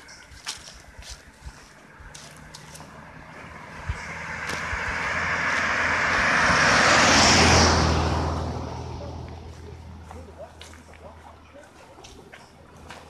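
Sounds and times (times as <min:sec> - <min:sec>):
vehicle driving past: 0:02.0 - 0:10.3.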